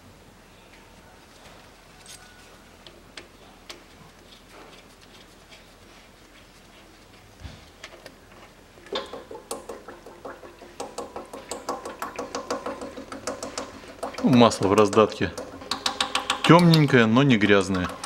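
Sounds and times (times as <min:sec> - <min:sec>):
faint clicks of drain plug: 0:08.8 - 0:17.0
oil pouring and splattering: 0:08.9 - 0:16.5.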